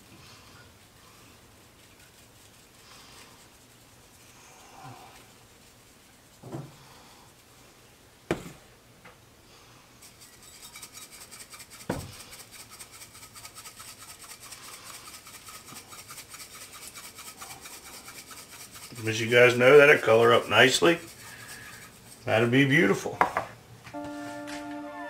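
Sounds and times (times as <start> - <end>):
spice shaker rattling: 1.6 - 4.2, 10.0 - 22.3.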